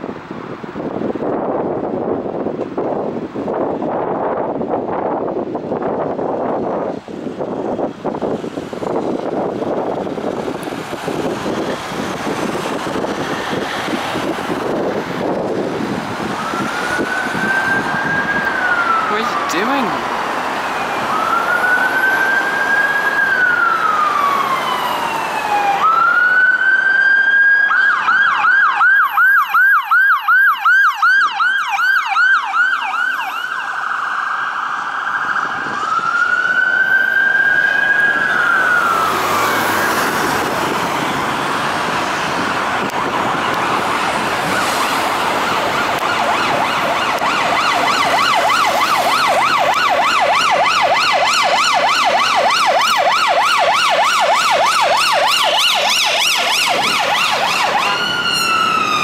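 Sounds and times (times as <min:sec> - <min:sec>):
road and engine noise: 0:00.0 - 0:59.0
ambulance siren wailing and yelping: 0:06.0 - 0:59.0
second siren fast yelp: 0:16.4 - 0:20.0, 0:45.8 - 0:59.0.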